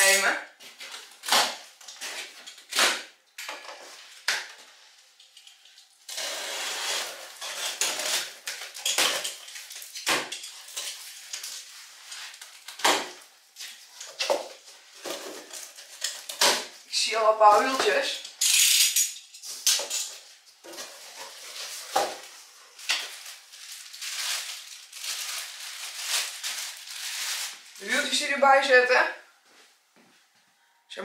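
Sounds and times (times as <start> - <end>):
knife slitting packing tape: 6.1 - 11.5
metal parts clinking: 18.3 - 20.2.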